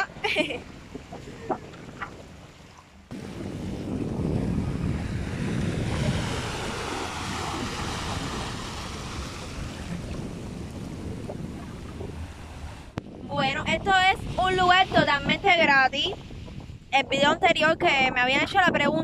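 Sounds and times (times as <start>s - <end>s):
sea waves washing over rocks: 3.1s - 16.1s.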